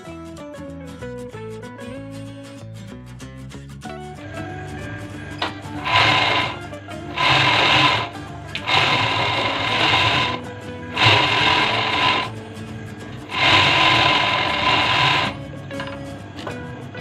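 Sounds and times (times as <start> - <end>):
overlock sewing machine stitching: 5.4 - 12.5, 13.1 - 15.6.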